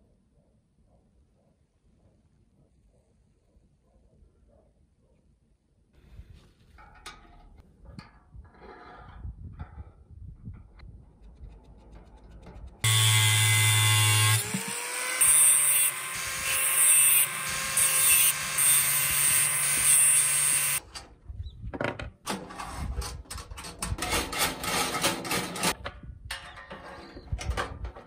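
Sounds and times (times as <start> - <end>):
angle grinder cutting metal: 12.8 - 20.8.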